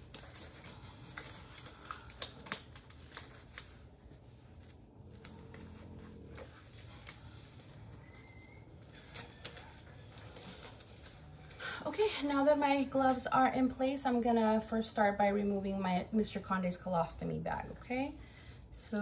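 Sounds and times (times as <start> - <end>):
gloves rustling and crinkling: 0.0 - 13.9.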